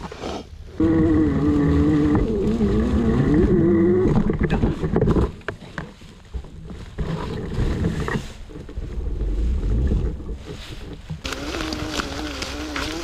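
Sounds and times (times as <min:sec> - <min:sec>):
rustling in dry leaves: 0:00.0 - 0:13.0
wind rumble on microphone: 0:00.6 - 0:13.0.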